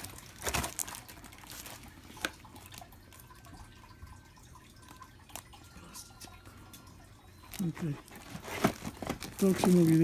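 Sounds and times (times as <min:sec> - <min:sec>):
cardboard and plastic handling: 0:00.0 - 0:02.8, 0:07.5 - 0:10.0
faint background hum: 0:00.0 - 0:10.0.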